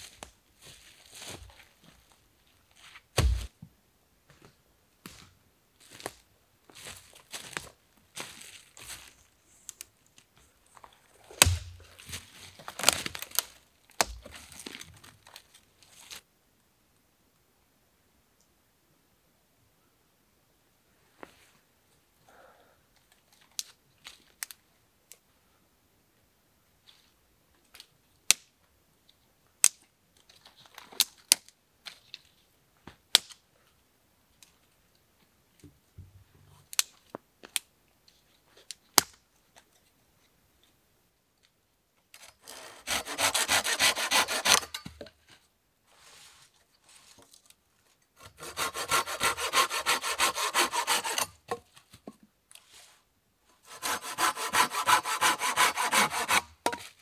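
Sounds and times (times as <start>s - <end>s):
hand saw cutting wood: 42.4s - 44.9s, 48.2s - 51.5s, 53.6s - 56.8s.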